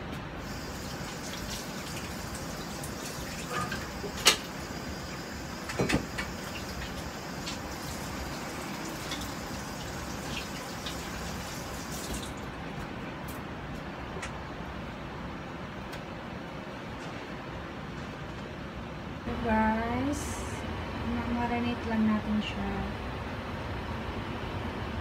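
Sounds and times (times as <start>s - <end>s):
tap water running: 0.4s - 12.5s.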